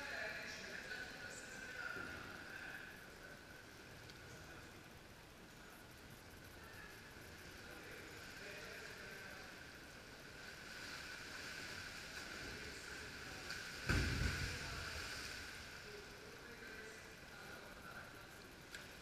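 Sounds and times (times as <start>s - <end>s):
pool hall hiss: 0.0s - 19.0s
loud thump: 13.8s - 14.7s.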